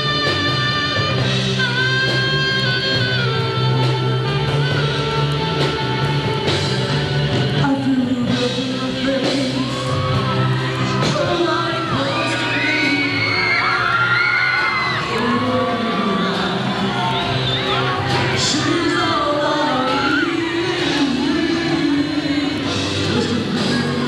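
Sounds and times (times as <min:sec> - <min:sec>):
saxophone holding long notes: 0:00.0 - 0:07.3
rock band playing live: 0:00.0 - 0:24.0
audience yelling and whooping: 0:08.8 - 0:24.0.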